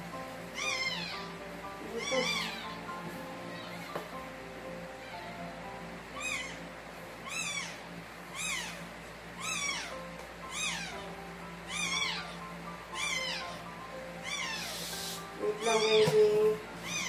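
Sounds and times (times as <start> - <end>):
faint steady hum: 0.0 - 17.0
dog squealing: 0.5 - 2.9, 6.2 - 11.1, 11.7 - 15.0, 15.6 - 17.0.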